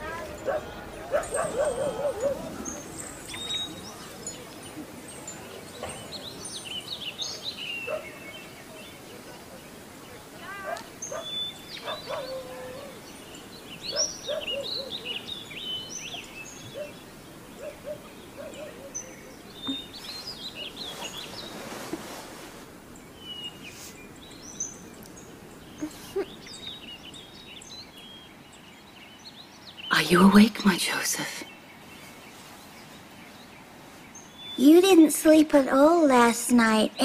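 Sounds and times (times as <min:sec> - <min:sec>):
small birds chirping: 0:00.0 - 0:37.0
steady background hiss: 0:00.0 - 0:37.0
soft rustle: 0:19.4 - 0:27.2, 0:31.7 - 0:34.8.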